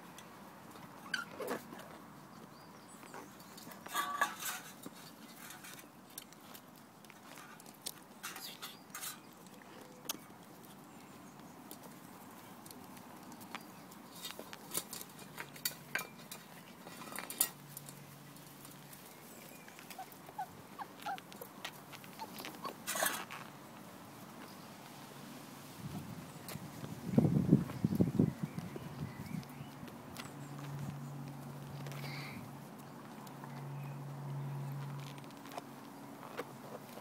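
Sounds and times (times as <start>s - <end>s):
puppy paws scuffing on grass: 0.3s - 37.0s
faint high squeaks: 1.0s - 1.6s.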